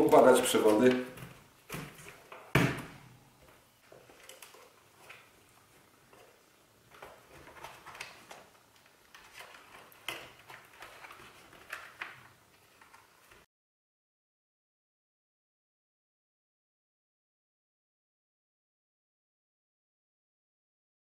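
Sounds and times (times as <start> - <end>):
wires rustling and clicking: 3.4 - 13.5.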